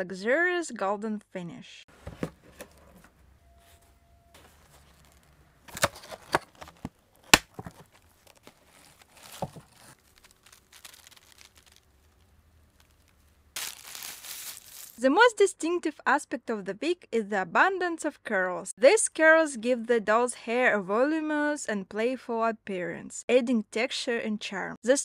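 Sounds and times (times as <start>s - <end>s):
plastic packaging crinkling: 4.4s - 15.0s.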